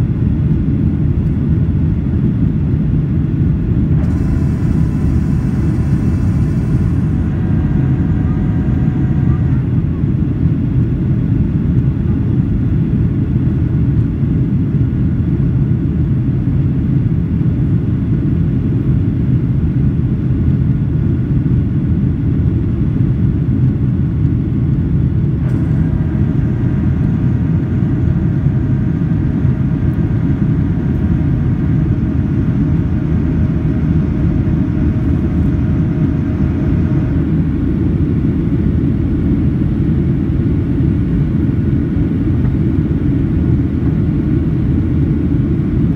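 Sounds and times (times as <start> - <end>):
airliner cabin engine noise: 0.0 - 45.9
faint high tone: 7.0 - 10.0.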